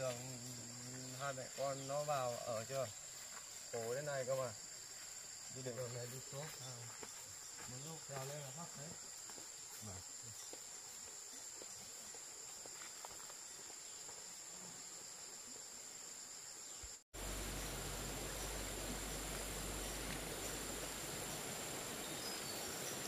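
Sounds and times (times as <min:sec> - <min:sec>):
even noise with low rumble: 0:17.2 - 0:22.3.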